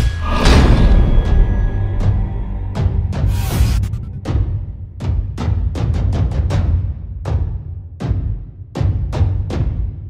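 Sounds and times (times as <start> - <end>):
low bass: 0.0 - 5.8.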